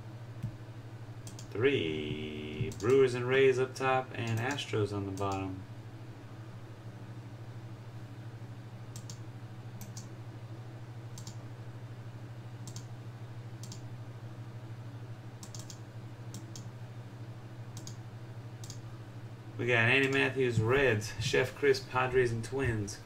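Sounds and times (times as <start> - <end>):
low electrical hum: 0.0 - 23.0
computer mouse and keyboard clicks: 1.2 - 1.6, 2.6 - 3.0, 4.2 - 4.6, 8.9 - 9.2, 11.2 - 11.4, 12.6 - 12.9, 13.6 - 13.8, 15.4 - 16.7, 17.8 - 18.0.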